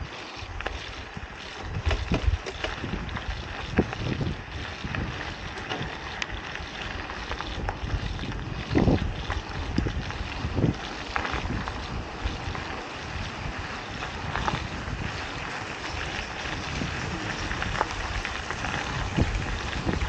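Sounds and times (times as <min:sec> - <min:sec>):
tyres rolling on dirt: 0:00.0 - 0:20.0
wind rushing on microphone: 0:00.0 - 0:20.0
bike thumps and rattles: 0:00.7 - 0:06.6.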